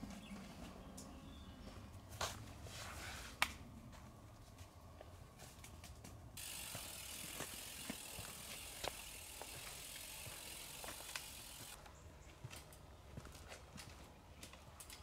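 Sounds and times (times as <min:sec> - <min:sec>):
bike freewheel hub ticking: 0:06.4 - 0:11.8.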